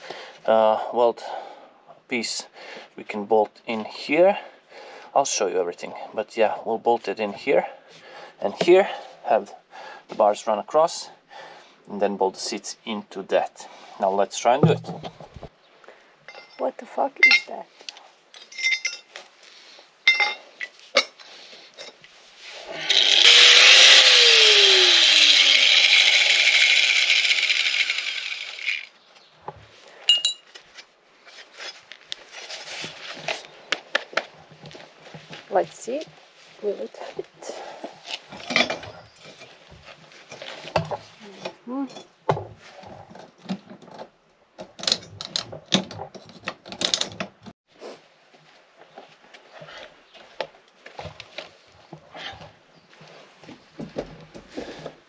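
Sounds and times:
metallic clinks: 18.4s - 19.1s, 30.1s - 30.5s
angle grinder cutting steel: 22.6s - 28.9s.

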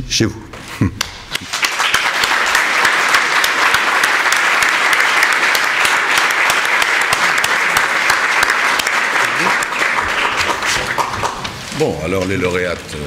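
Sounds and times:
audience applauding: 1.3s - 11.7s.

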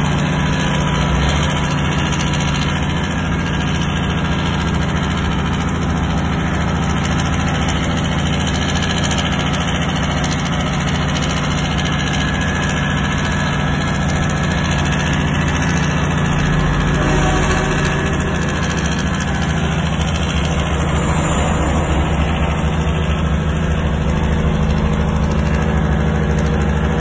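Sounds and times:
truck diesel engine drone: 0.0s - 27.0s.

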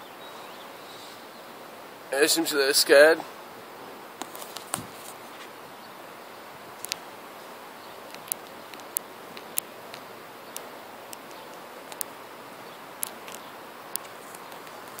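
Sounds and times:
squirrel gnawing cone clicks: 6.8s - 7.0s, 8.0s - 12.2s, 13.0s - 15.0s.

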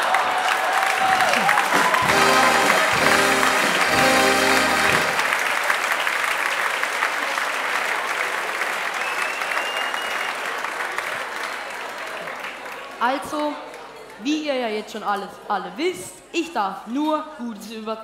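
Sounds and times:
audience applauding: 0.0s - 13.0s
song ending on held chords: 1.7s - 5.2s.

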